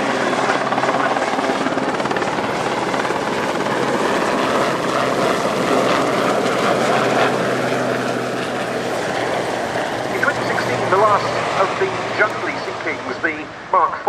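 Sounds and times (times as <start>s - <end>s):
helicopter flying past: 0.0s - 14.0s.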